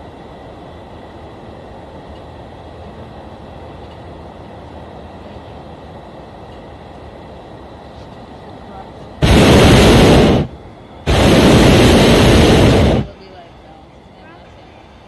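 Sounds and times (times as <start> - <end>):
faint high steady tones: 0.0 - 15.0
low rumbling: 9.2 - 13.2.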